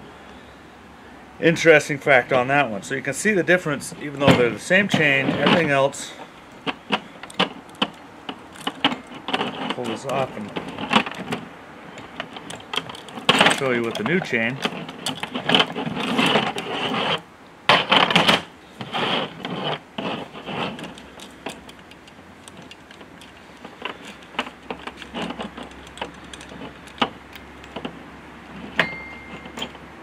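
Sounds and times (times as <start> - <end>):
saw chain clinking and rattling: 7.2 - 11.4, 12.0 - 17.2, 19.5 - 27.8, 28.7 - 29.9.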